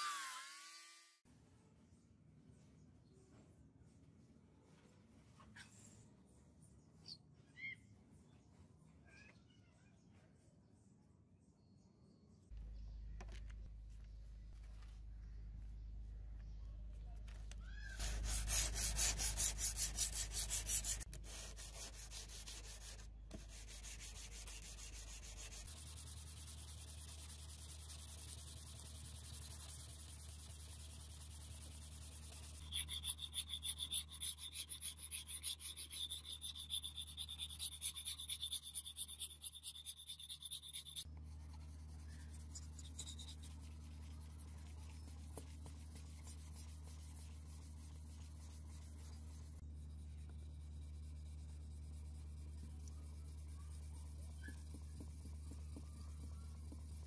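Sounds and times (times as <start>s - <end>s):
sandpaper rubbing steel edge: 18.0s - 41.0s, 41.6s - 49.4s.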